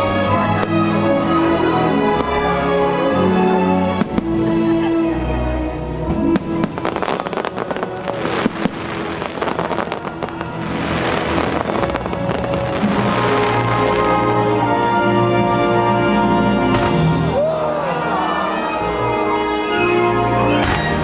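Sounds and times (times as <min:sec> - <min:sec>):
fireworks bursting and crackling: 0:00.0 - 0:03.2, 0:03.8 - 0:04.8, 0:06.1 - 0:17.5, 0:20.1 - 0:21.0
show music: 0:00.0 - 0:21.0
fireworks bang: 0:16.7 - 0:17.3.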